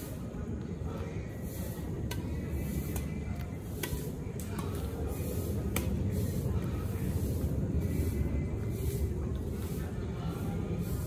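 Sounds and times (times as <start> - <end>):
rackets hitting shuttlecock: 1.9 - 5.0, 5.6 - 6.1.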